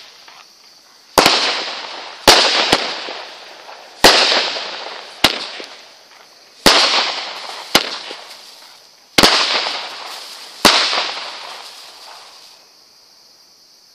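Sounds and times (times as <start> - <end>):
firework bangs: 1.1 - 12.6
hiss of sparks: 3.0 - 12.7.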